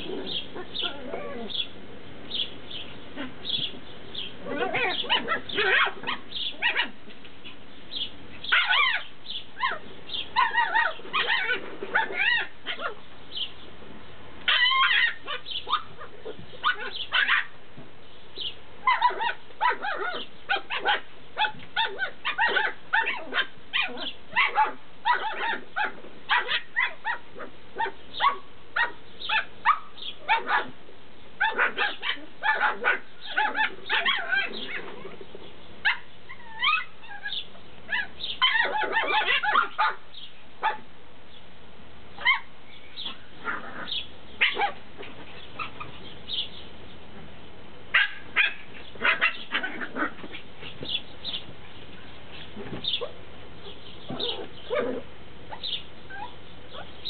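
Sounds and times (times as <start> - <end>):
puppies yelping and whining: 0.0 - 1.7, 4.4 - 7.0, 8.5 - 13.0, 14.5 - 17.5, 18.8 - 27.2, 31.4 - 40.0, 42.2 - 46.0, 48.0 - 51.5, 52.3 - 56.9.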